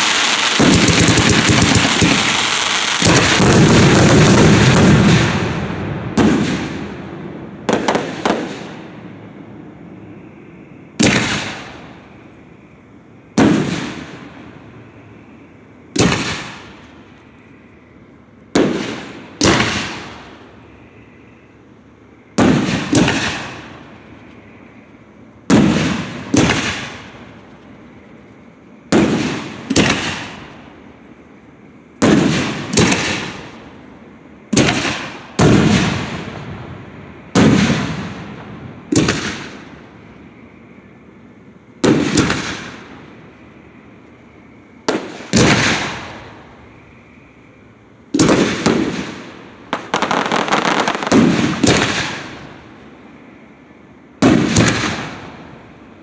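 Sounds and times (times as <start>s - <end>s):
fireworks bangs with echo: 0.0s - 9.0s, 11.0s - 12.1s, 13.3s - 14.5s, 15.9s - 17.0s, 18.5s - 20.4s, 22.3s - 23.9s, 25.4s - 27.3s, 28.8s - 30.6s, 32.0s - 33.7s, 34.5s - 39.9s, 41.8s - 43.0s, 44.8s - 46.5s, 48.1s - 52.6s, 54.2s - 55.6s.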